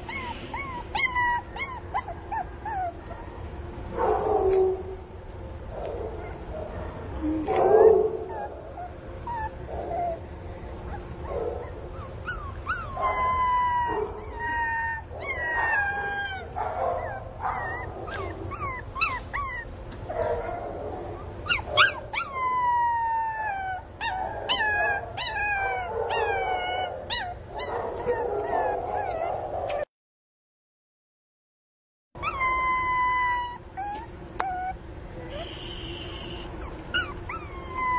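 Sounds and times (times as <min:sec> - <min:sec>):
puppy whining and yipping: 0:00.0 - 0:03.4, 0:06.1 - 0:06.5, 0:07.4 - 0:29.8, 0:32.2 - 0:37.9.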